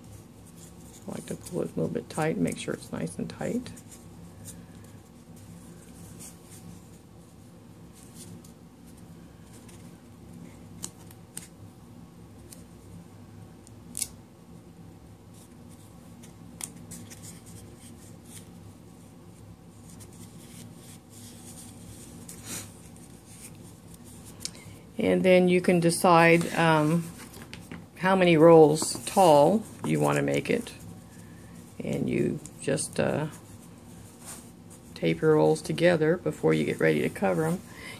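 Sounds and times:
low steady hum: 0:00.0 - 0:37.9
tape rubbing and crinkling: 0:15.3 - 0:18.6, 0:19.4 - 0:24.6.

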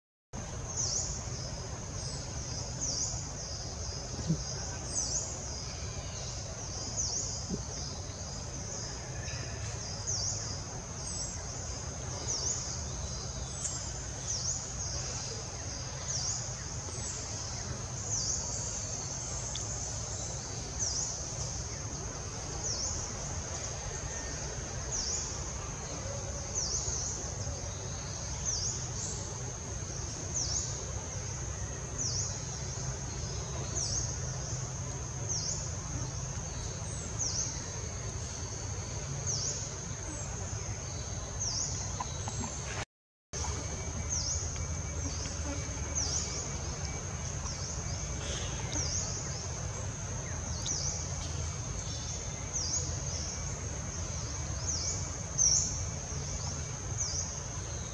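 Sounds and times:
insect chirp: 0:00.4 - 0:42.8, 0:43.4 - 0:57.9
insect high buzz: 0:43.4 - 0:57.9.

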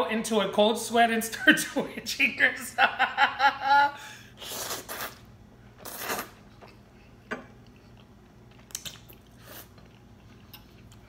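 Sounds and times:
spaghetti slurping: 0:04.4 - 0:06.6, 0:07.7 - 0:10.9
quiet chewing: 0:05.9 - 0:11.0.

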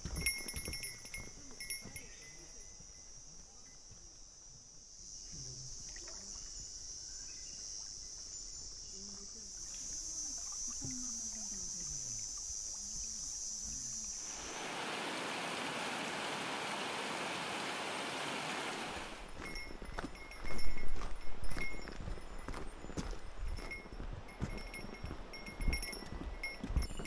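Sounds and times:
insects buzzing: 0:02.1 - 0:19.2
river rushing: 0:14.2 - 0:19.3.

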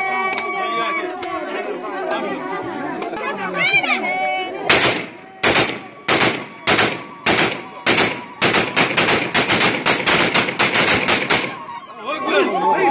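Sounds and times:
rifle gunfire: 0:04.7 - 0:11.6.

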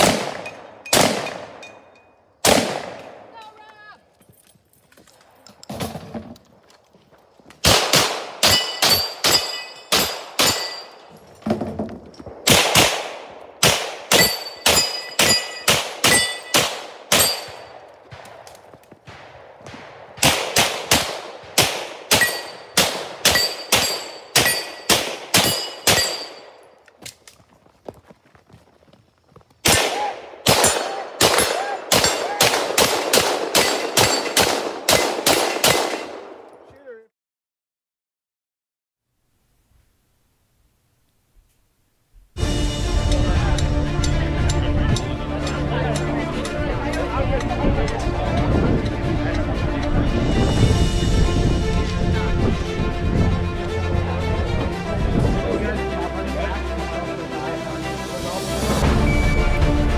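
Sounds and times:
rapid gunshots: 0:07.6 - 0:10.7, 0:12.4 - 0:18.3, 0:19.0 - 0:26.2, 0:29.6 - 0:36.2
steel targets clanging: 0:08.4 - 0:12.2, 0:14.1 - 0:17.8, 0:22.1 - 0:26.8, 0:33.6 - 0:34.4.

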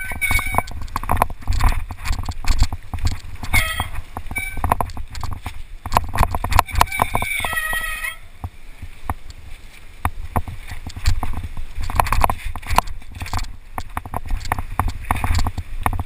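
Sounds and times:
bike rattling over rocks: 0:00.0 - 0:16.0
wind rumble on mic: 0:00.0 - 0:16.0
brakes squealing: 0:03.4 - 0:04.8, 0:06.6 - 0:08.4.

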